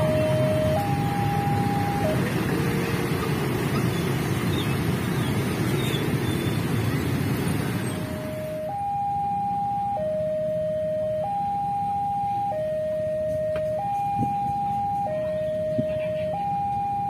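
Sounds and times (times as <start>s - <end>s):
level-crossing warning alarm: 0.0s - 4.5s, 7.9s - 17.0s
motorcycle traffic: 0.0s - 17.0s.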